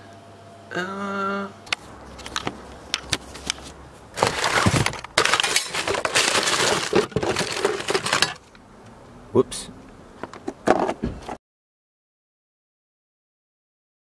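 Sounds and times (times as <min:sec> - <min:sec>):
paper bags and bottle crinkling: 0:03.2 - 0:08.5.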